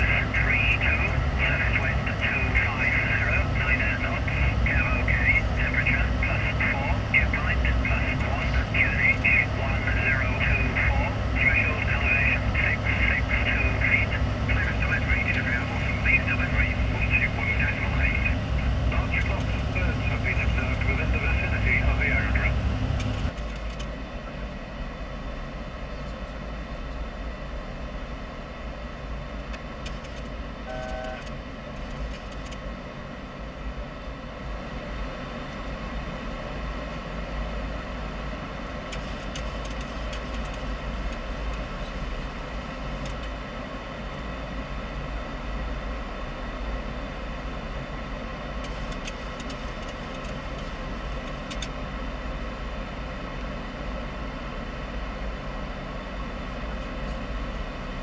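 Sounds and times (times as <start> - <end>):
airflow and engine rush: 0.0 - 58.0
steady hum: 0.0 - 58.0
short beep: 30.7 - 31.3
faint clicks: 48.6 - 51.8.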